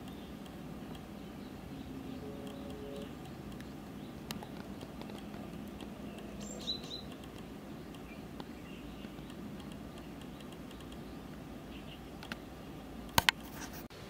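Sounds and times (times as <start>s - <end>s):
bird chirping: 0.0s - 13.2s
faint ticks: 2.3s - 12.4s.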